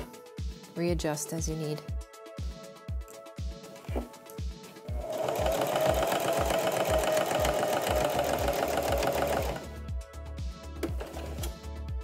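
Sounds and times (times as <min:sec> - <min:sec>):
sewing machine stitching: 0:04.9 - 0:09.7.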